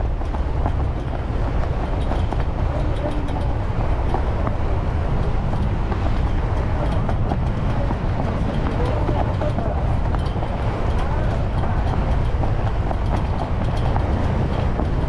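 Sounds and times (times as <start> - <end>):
faint ticks and rattles: 0.0 - 15.0
ferry engines rumbling: 0.0 - 15.0.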